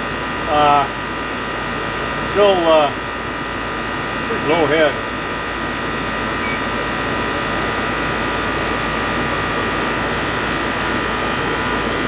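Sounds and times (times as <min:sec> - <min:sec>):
air conditioner humming: 0:00.0 - 0:12.0
short electronic beep: 0:04.5 - 0:04.8, 0:06.4 - 0:06.7.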